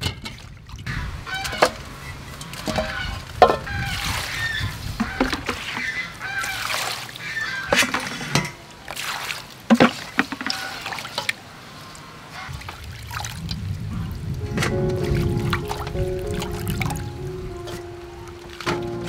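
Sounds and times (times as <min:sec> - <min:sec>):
water sloshing in a steel bowl: 0:01.5 - 0:11.4
music: 0:14.4 - 0:19.0.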